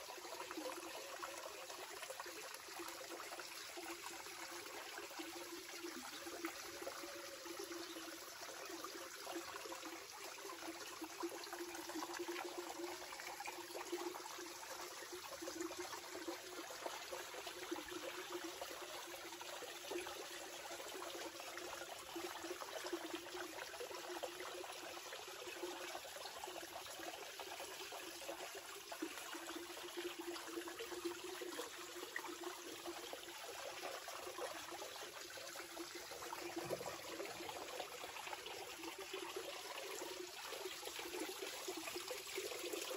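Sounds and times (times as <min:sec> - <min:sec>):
water trickling: 0:00.0 - 0:42.9.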